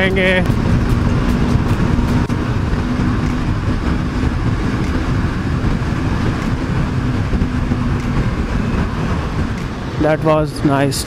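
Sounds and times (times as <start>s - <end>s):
motorcycle engine cruising: 0.0s - 11.0s
wind buffeting microphone: 0.0s - 11.0s.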